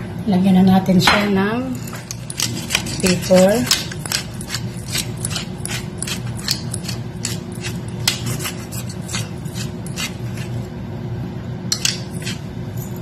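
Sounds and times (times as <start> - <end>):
pepper mill grinding: 1.7 - 10.7, 11.7 - 13.0.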